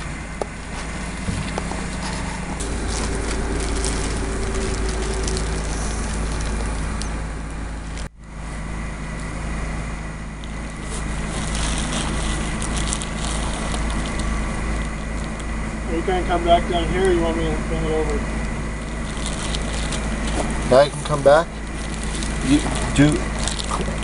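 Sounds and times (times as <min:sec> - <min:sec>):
faint steady whine: 0:00.0 - 0:24.0
low mechanical drone: 0:00.0 - 0:24.0.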